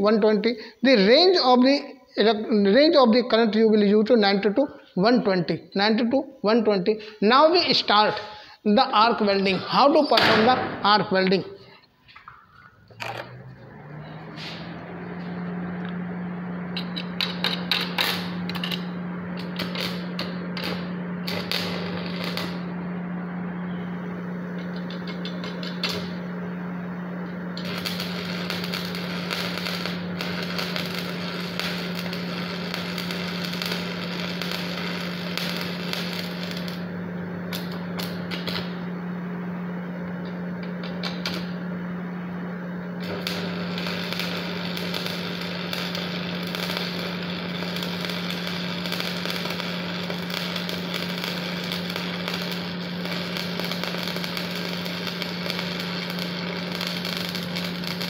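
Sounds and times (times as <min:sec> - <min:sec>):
low hum: 0:12.2 - 0:58.0
welding arc crackling: 0:12.8 - 0:58.0.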